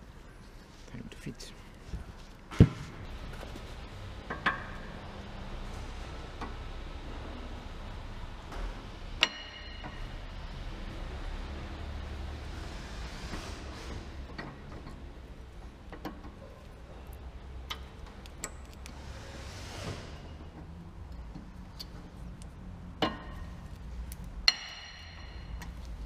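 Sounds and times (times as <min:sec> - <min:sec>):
metallic clicks of brake pads: 0:14.2 - 0:19.0, 0:20.5 - 0:26.0.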